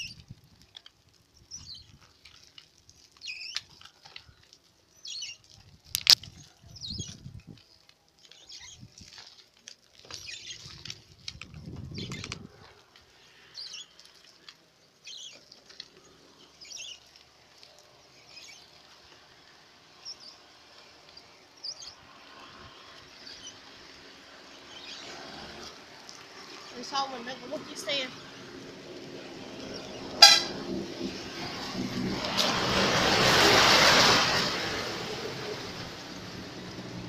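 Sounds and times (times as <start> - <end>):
crackling handling noise: 0.0 - 20.0
wind buffeting microphone: 5.7 - 7.6, 10.5 - 12.7.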